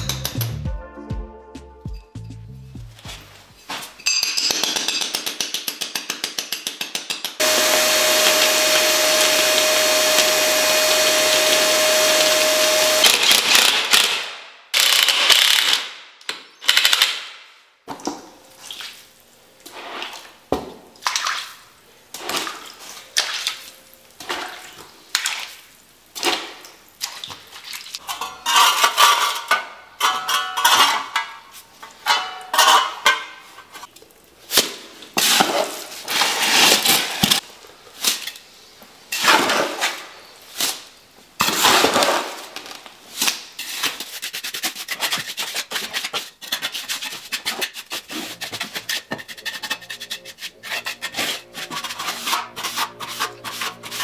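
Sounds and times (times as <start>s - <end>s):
loud steady mechanical hum: 7.4s - 13.2s
steel trowel scraping wet mortar: 43.6s - 54.0s.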